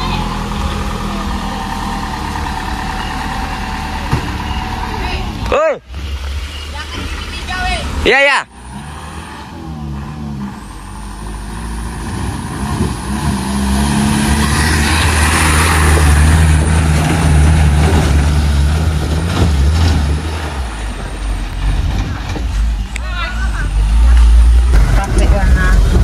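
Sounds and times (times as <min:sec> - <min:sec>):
truck engine driving past: 0:00.0 - 0:26.0.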